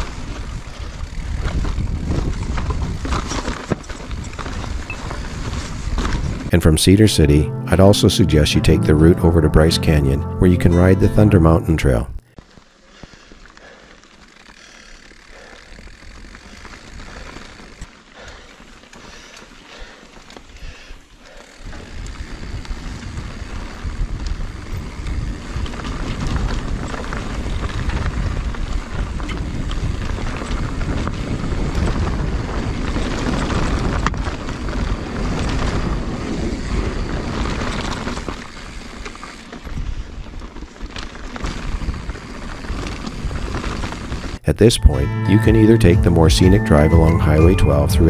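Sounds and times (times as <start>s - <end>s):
bicycle tyre noise on dirt: 0.0s - 6.5s, 12.4s - 44.4s
wind buffeting microphone: 0.6s - 3.2s.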